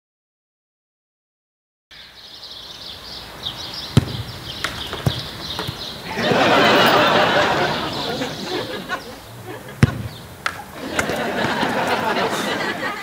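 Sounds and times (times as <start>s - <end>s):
birds chirping: 1.9s - 13.0s
loud rush of noise: 2.0s - 13.0s
football kicked with thud: 3.9s - 5.9s, 9.8s - 10.2s
light knocks: 4.0s - 5.9s.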